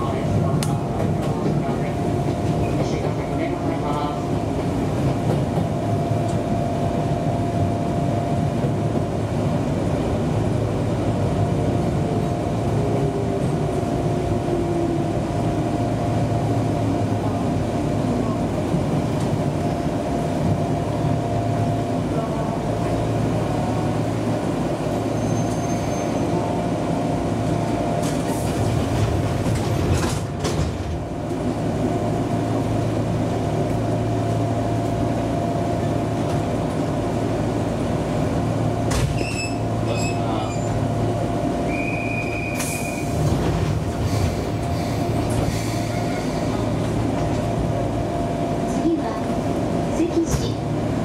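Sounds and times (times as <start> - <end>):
train rumbling on rails: 0.0 - 51.0
wheel squeal: 25.1 - 26.3, 39.2 - 40.8.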